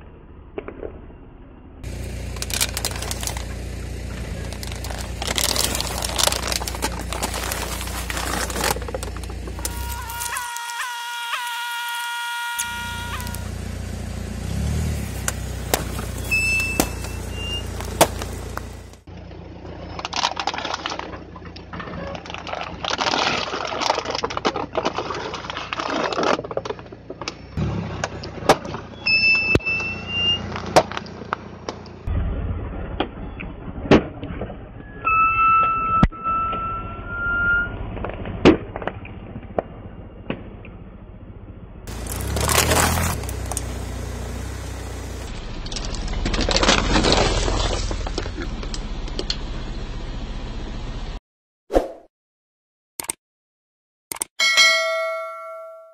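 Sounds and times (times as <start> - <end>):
car engine rumbling: 1.4 - 10.4, 12.6 - 35.0, 36.4 - 51.2
plastic bottles crackling and crunching: 1.8 - 13.4, 15.1 - 19.1, 20.0 - 27.3, 41.9 - 48.8
balloons bursting: 4.3 - 13.5, 15.2 - 18.9
short high squeaks: 9.5 - 13.5, 16.0 - 18.9, 28.9 - 30.6, 34.8 - 37.8.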